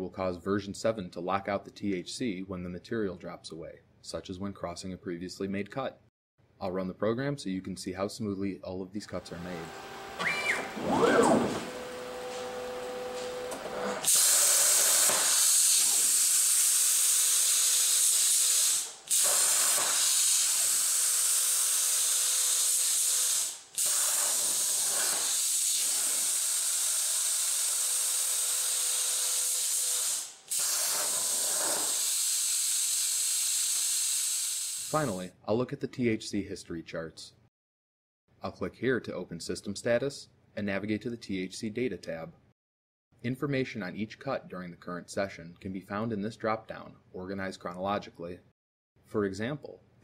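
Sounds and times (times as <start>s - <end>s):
plasma torch arc hissing: 14.0s - 35.1s.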